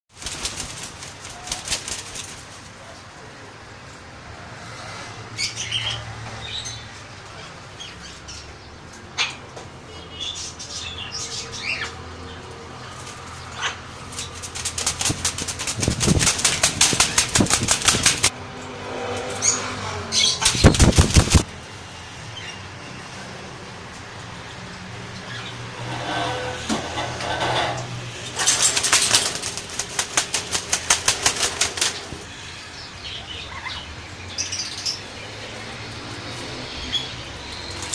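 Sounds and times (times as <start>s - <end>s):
parrot wings flapping: 0.1s - 2.8s, 14.0s - 18.3s, 20.4s - 21.5s, 28.4s - 32.2s.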